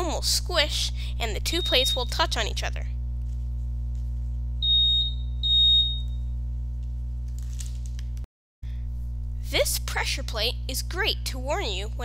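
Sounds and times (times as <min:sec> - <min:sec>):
buzzer beeping: 0:01.4 - 0:02.4, 0:04.6 - 0:06.3.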